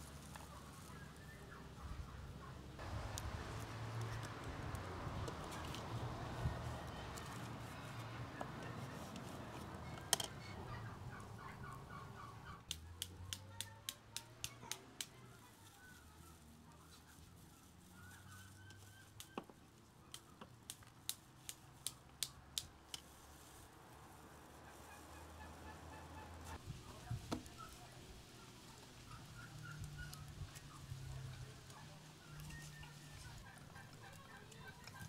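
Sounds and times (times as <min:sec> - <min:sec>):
turkey gobbling: 0:09.8 - 0:12.7, 0:24.6 - 0:26.6, 0:31.7 - 0:35.0.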